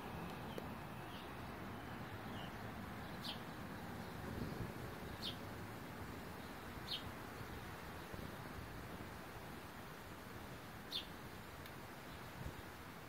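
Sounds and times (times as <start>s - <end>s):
steady background hiss: 0.0s - 13.0s
small bird chirping: 0.1s - 5.5s, 6.3s - 8.5s, 10.9s - 11.2s.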